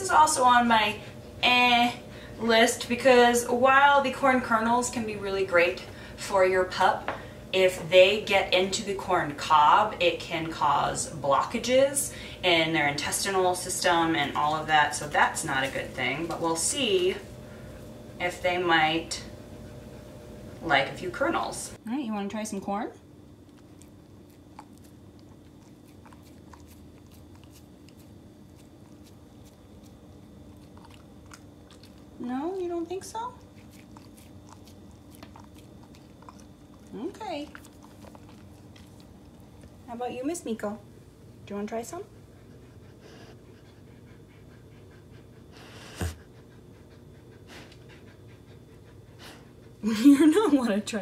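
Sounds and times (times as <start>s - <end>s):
low steady hum: 0.0s - 51.0s
dog sniffing and breathing: 14.1s - 21.6s, 23.5s - 32.2s, 33.0s - 39.9s, 41.9s - 50.0s
dog licking and mouthing: 23.4s - 40.0s.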